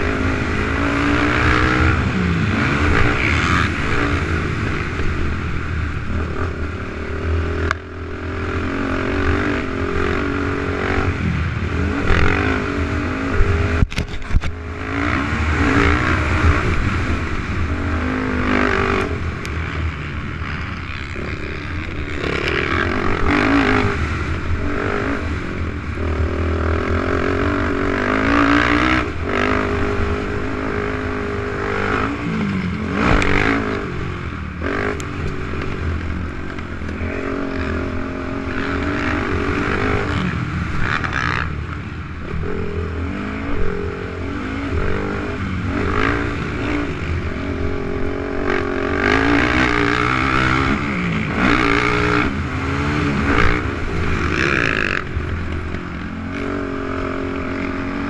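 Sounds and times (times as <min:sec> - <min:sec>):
atv engine revving: 0:00.0 - 0:58.0
wind noise on microphone: 0:11.0 - 0:19.5.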